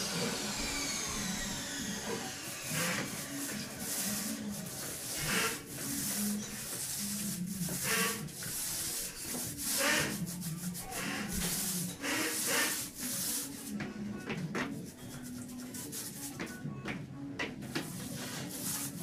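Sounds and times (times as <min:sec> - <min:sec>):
scraping strokes on floor: 0:02.4 - 0:13.8, 0:17.8 - 0:19.0.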